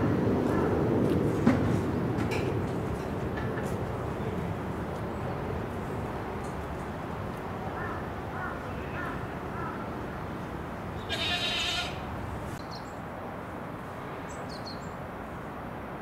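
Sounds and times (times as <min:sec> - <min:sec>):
loud animal cry: 0:11.1 - 0:12.0.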